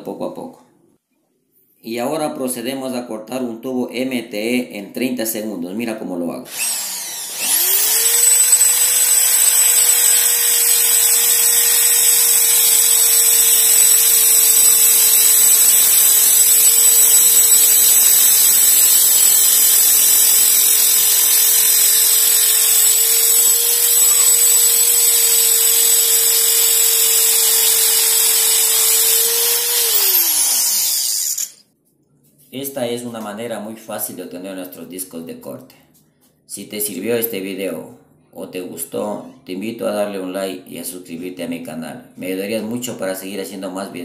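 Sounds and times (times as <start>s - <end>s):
drill motor whine: 6.5s - 31.6s.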